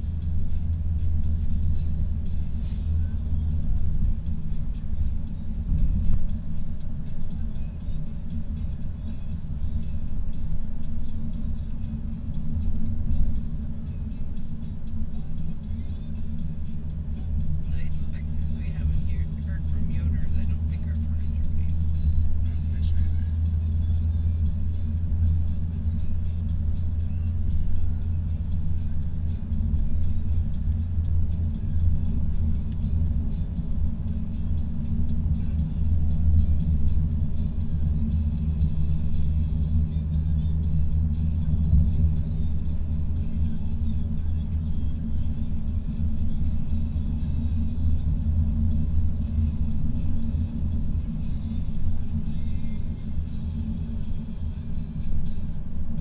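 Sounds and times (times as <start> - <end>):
car engine rumble: 0.0 - 56.0
tyres on road: 0.0 - 56.0.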